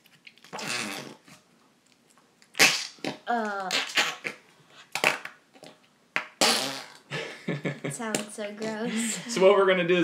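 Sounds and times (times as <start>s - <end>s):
fart putty squelching: 0.5s - 1.4s, 2.6s - 7.1s.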